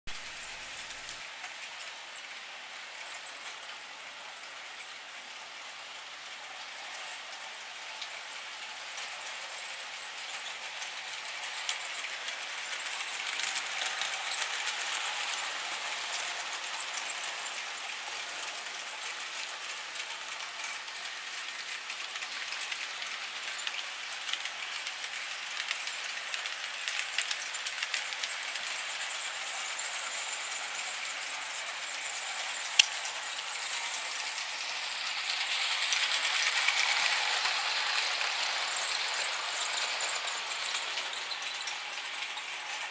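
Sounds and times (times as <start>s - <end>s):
model trains running on track: 0.1s - 42.9s.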